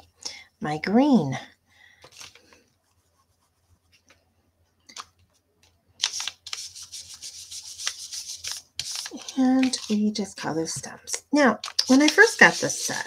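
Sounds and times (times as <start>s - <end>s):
brush swishing strokes: 11.9s - 13.0s.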